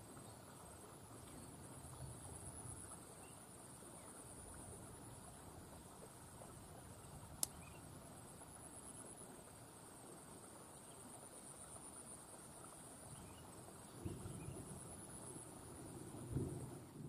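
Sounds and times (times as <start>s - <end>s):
insects chirring: 6.5s - 17.0s.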